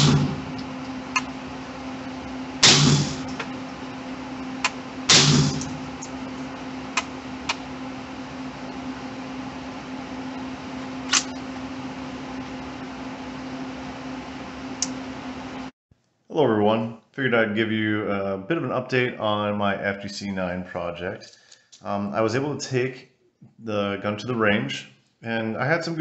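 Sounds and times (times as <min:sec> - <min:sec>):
gunshots: 0:00.0 - 0:00.4, 0:02.6 - 0:03.3, 0:05.1 - 0:05.8
steady low hum: 0:00.0 - 0:15.7
small sharp crack: 0:11.1 - 0:11.4.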